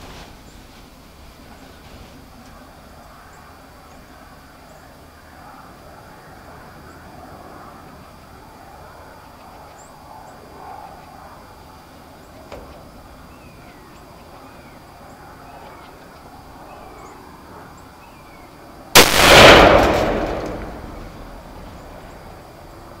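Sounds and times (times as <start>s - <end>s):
gunshot: 19.0s - 21.7s.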